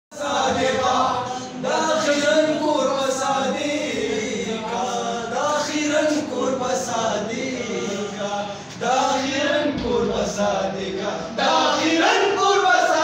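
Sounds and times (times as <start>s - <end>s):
men singing unaccompanied: 0.1s - 13.0s.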